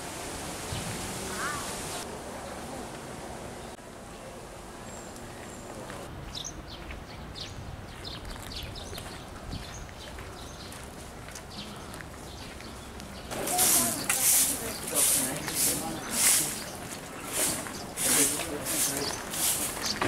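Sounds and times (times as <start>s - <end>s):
small birds chirping: 4.8s - 20.0s.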